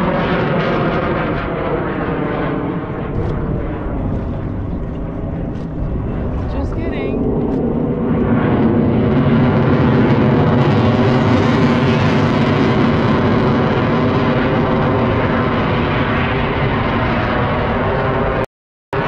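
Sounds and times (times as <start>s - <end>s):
jet flying overhead: 0.0s - 19.0s.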